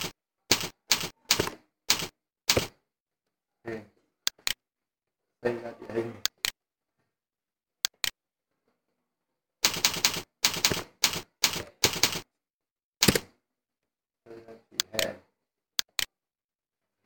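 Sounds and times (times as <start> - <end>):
keyboard clicks: 0.0 - 2.8, 7.8 - 8.2, 13.0 - 13.3, 15.8 - 16.2
keyboard typing: 0.0 - 2.8, 9.6 - 12.3, 13.0 - 13.3.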